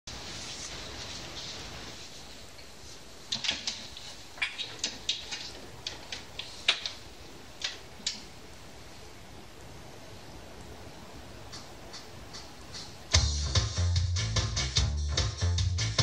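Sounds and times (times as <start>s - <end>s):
faint steady hiss: 0.1s - 16.0s.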